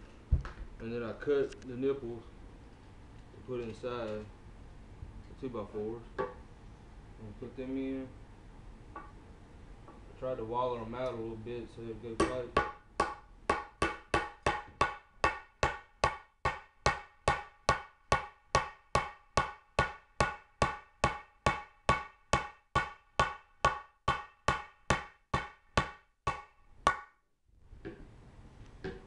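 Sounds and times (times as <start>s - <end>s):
hammer striking metal pipe: 12.2s - 27.2s.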